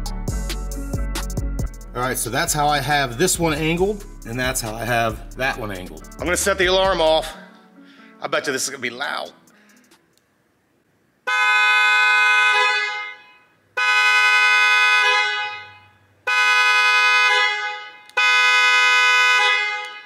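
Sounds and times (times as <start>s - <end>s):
loud car horn blasts echoing: 11.3s - 20.0s.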